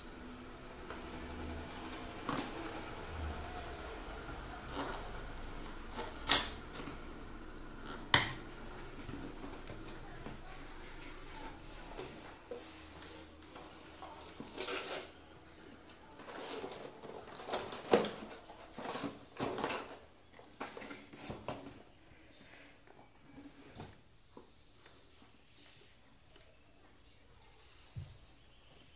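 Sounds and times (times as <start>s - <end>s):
cardboard scraping and rustling: 8.7s - 21.8s.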